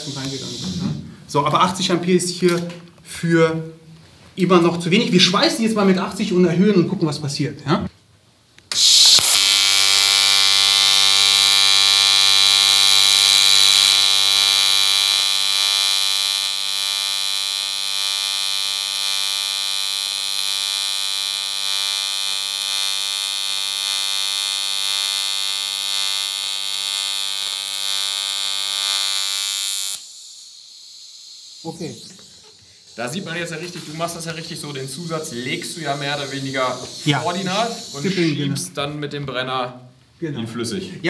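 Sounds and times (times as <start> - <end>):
welding arc buzz: 0.0 - 1.0, 8.6 - 38.4.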